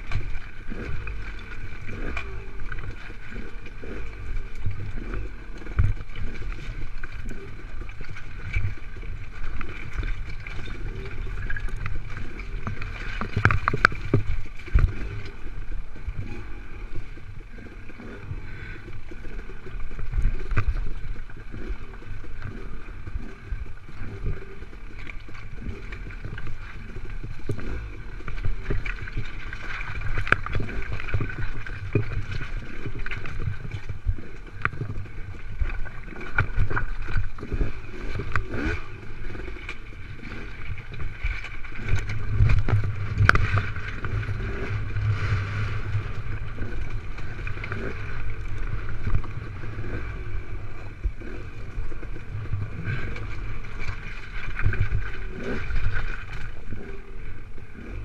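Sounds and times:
dirt bike engine at low revs: 0:41.6 - 0:53.7, 0:57.7 - 0:58.0.

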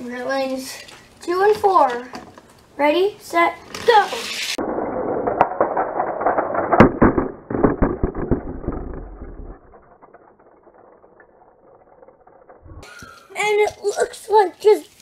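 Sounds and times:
toy cars rattling on plastic track: 0:03.4 - 0:15.0
clicks and knocks: 0:05.3 - 0:12.6.

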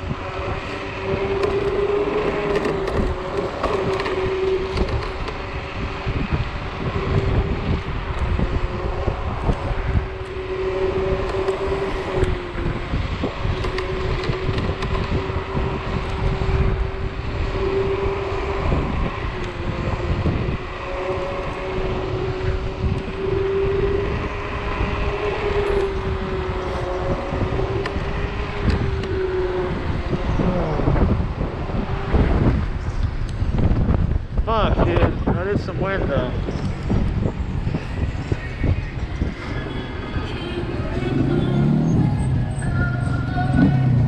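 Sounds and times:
electric scooter motor whining: 0:00.0 - 0:35.0
road noise: 0:00.0 - 0:44.0
wind rumble on microphone: 0:00.0 - 0:44.0.

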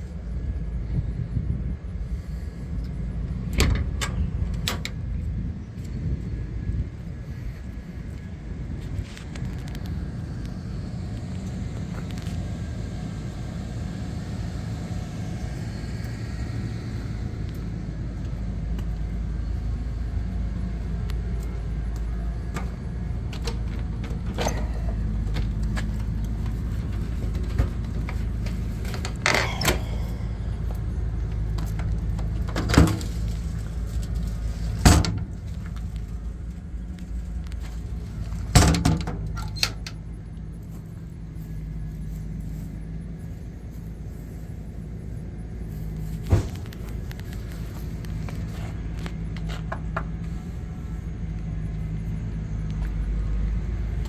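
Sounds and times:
low mechanical rumble: 0:00.0 - 0:54.0.

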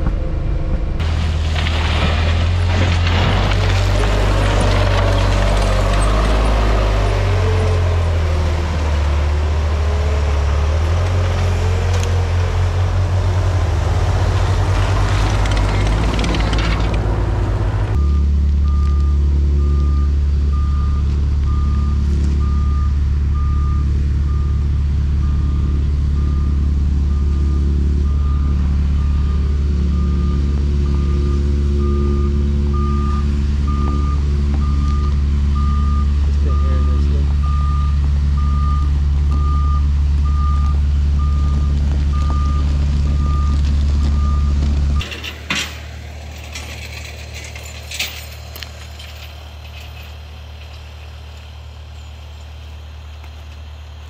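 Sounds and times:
diesel truck engine reversing: 0:00.0 - 0:54.0
track loader working over gravel: 0:00.0 - 0:54.0
backup alarm beeping: 0:17.9 - 0:44.6.

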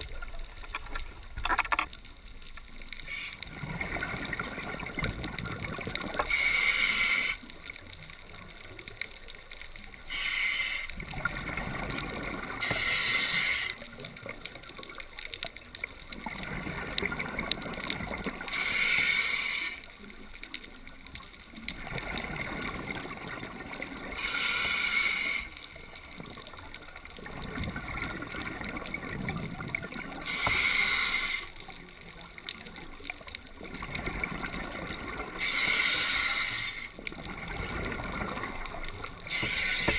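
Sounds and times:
underwater bubbling: 0:00.0 - 0:39.9
regulator breathing hiss: 0:03.0 - 0:03.5, 0:06.2 - 0:07.6, 0:10.0 - 0:11.1, 0:12.6 - 0:13.8, 0:18.4 - 0:19.8, 0:24.1 - 0:25.7, 0:30.2 - 0:31.6, 0:35.4 - 0:37.0, 0:39.2 - 0:39.9.

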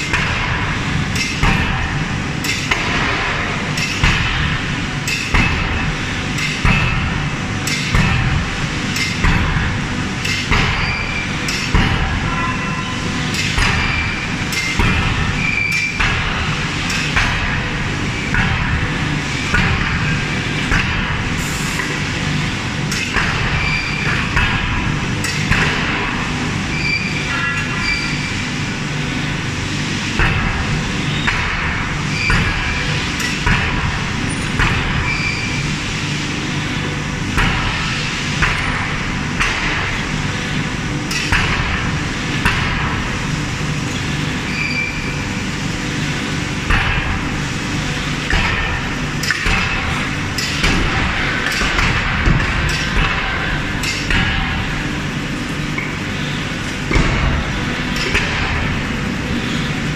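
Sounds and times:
forging hammer striking hot steel: 0:48.2 - 0:54.8.

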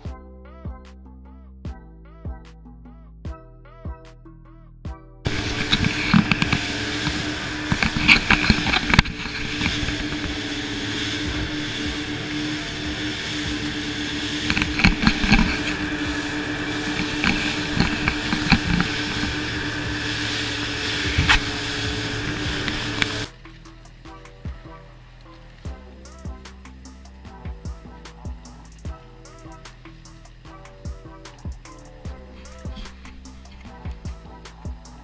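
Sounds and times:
boat engine running: 0:05.2 - 0:35.0
water rushing: 0:05.3 - 0:23.4.

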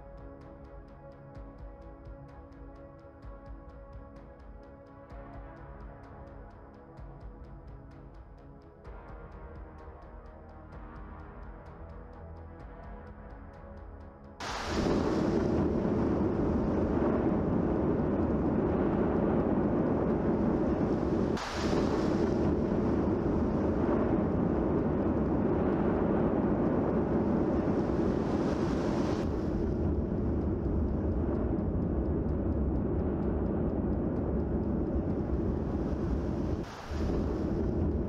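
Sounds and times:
volcano rumble: 0:14.4 - 0:38.0.

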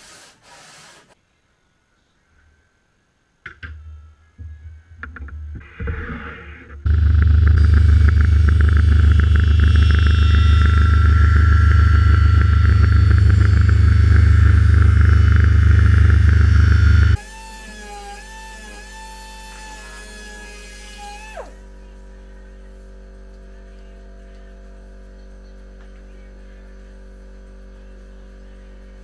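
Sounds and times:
workshop power tool running: 0:06.8 - 0:29.0.

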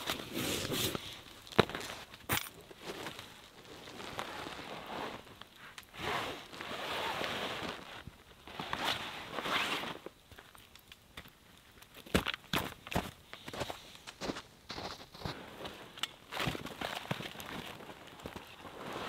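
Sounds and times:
canvas sheet rustling: 0:02.8 - 0:10.1, 0:17.4 - 0:19.0.

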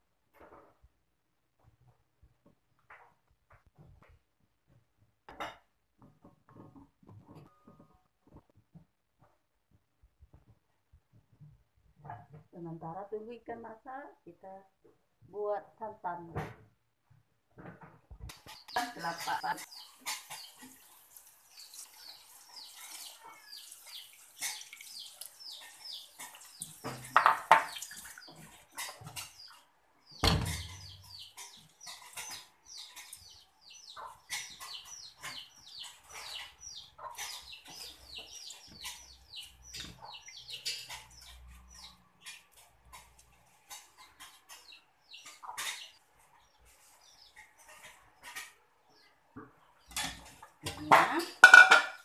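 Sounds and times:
birds chirping: 0:17.6 - 0:51.9.

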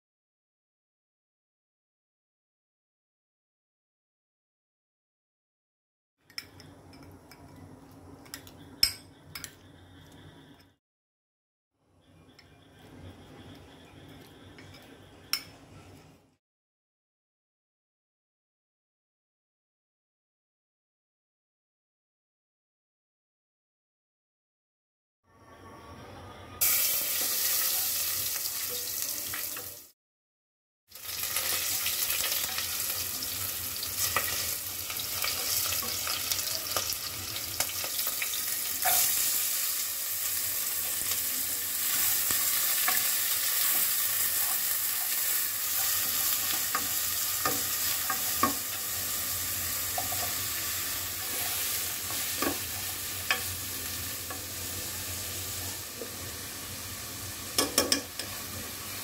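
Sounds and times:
food sizzling in hot oil: 0:26.6 - 0:30.0, 0:30.9 - 0:59.0.

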